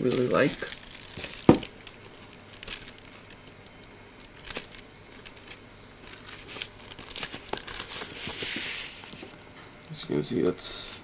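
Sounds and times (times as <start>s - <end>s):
cardboard and paper rustling: 0.0s - 3.5s, 4.2s - 9.4s
background hiss: 0.0s - 11.0s.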